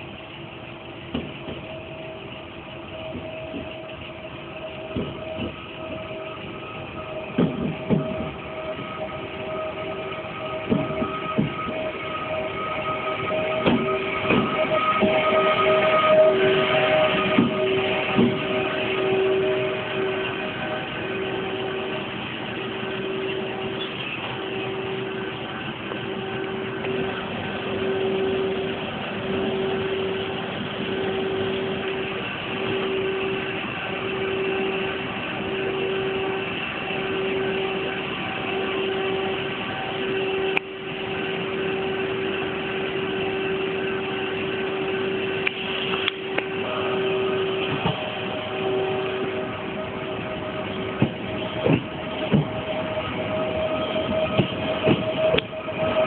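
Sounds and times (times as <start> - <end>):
pulsing low tone: 0.0 - 56.0
train equipment humming: 0.0 - 56.0.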